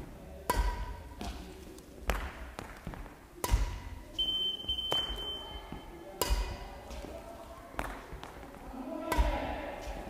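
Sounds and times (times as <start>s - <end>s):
racket hitting shuttlecock: 0.4s - 4.0s, 6.2s - 7.2s, 7.8s - 8.4s, 9.0s - 10.0s.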